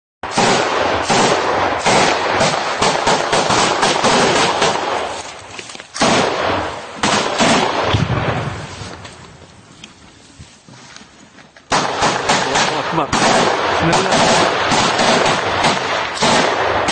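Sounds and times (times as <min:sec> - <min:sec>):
heavy gunfire: 0:00.2 - 0:05.2, 0:06.0 - 0:08.7, 0:11.7 - 0:16.9.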